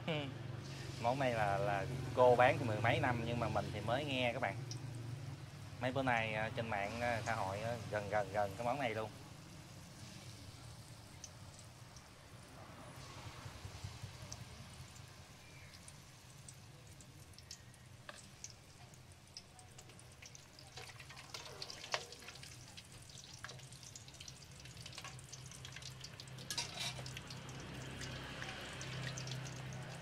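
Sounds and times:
oil sizzling with pops: 0:00.6 - 0:30.0
metal tongs clicking on wok: 0:24.8 - 0:27.2.

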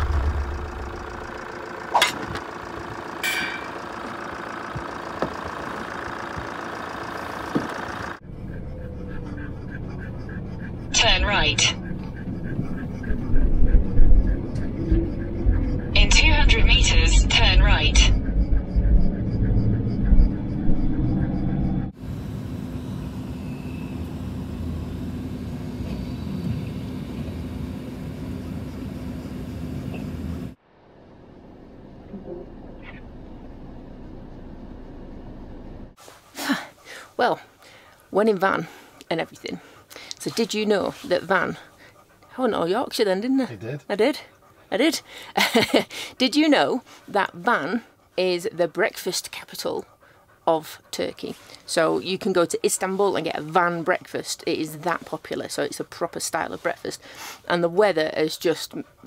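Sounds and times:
motorhome engine idling: 0:00.0 - 0:08.2
steady low hum: 0:00.0 - 0:59.0
vehicle engine and traffic rumble: 0:00.0 - 0:59.0.

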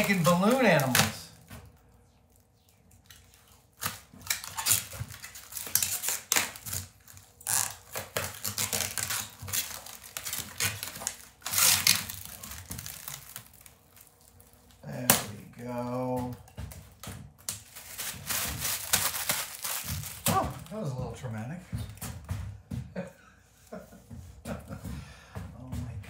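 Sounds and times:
plastic film crinkling: 0:00.0 - 0:14.9, 0:16.9 - 0:22.1.

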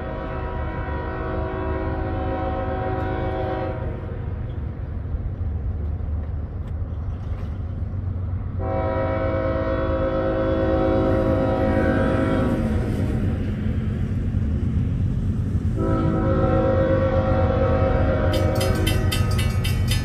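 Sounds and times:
train air horn blowing: 0:00.0 - 0:04.1, 0:08.6 - 0:13.0, 0:15.8 - 0:19.3.

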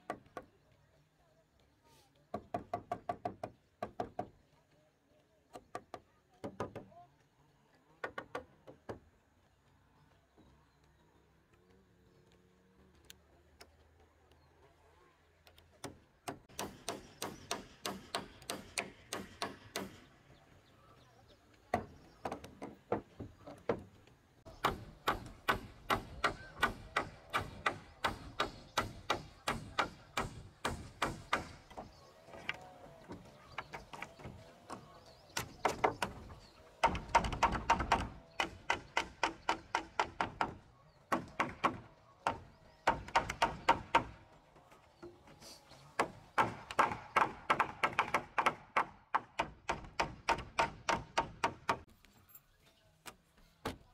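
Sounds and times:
hammers driving nails into wood: 0:15.8 - 0:20.1, 0:24.5 - 0:31.9, 0:35.4 - 0:44.2, 0:46.0 - 0:51.9.

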